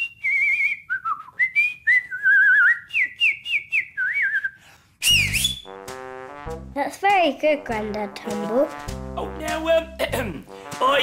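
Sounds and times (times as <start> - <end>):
man whistling a tune: 0.0 - 5.7.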